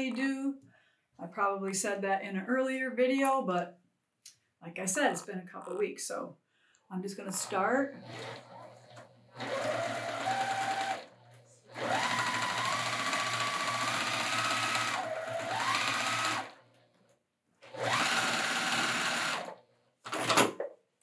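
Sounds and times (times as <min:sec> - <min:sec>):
sewing machine motor whine: 0:07.4 - 0:16.8, 0:17.6 - 0:19.6.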